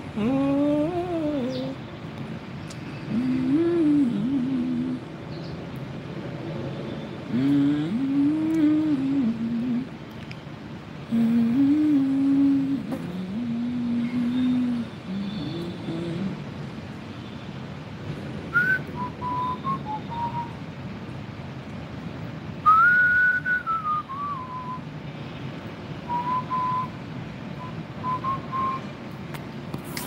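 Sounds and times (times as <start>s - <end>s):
person whistling a slow tune: 18.5s - 20.6s, 22.6s - 24.8s, 26.1s - 27.0s, 27.6s - 28.8s.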